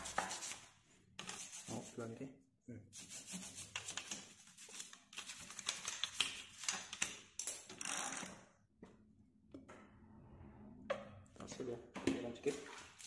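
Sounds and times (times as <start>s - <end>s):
toothbrush scrubbing metal: 1.2s - 2.1s, 2.9s - 6.6s.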